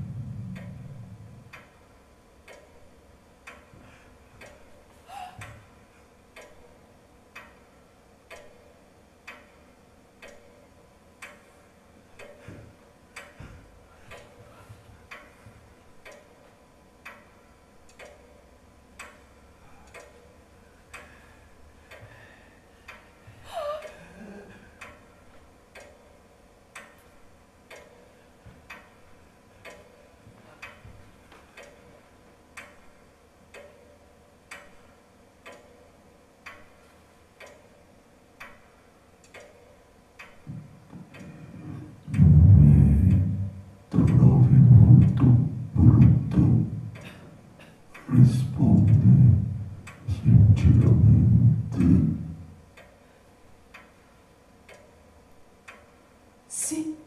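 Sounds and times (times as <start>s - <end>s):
clock ticking: 0.1s - 1.7s, 2.4s - 2.8s, 3.4s - 3.8s, 6.3s - 6.7s, 7.3s - 7.6s, 8.3s - 9.6s, 10.2s - 10.6s, 11.2s - 11.5s, 12.2s - 12.6s, 14.1s - 14.4s, 16.0s - 16.4s, 17.9s - 18.4s, 19.0s - 19.3s, 19.9s - 20.3s, 25.7s - 26.1s, 27.7s - 28.0s, 29.6s - 29.9s, 33.5s - 33.9s, 34.5s - 34.8s, 35.4s - 35.8s, 37.4s - 37.7s, 39.2s - 47.3s, 47.9s - 53.0s, 54.6s - 54.9s, 55.6s - 55.9s
voice with falling pitch: 41.6s - 47.0s, 48.1s - 52.4s.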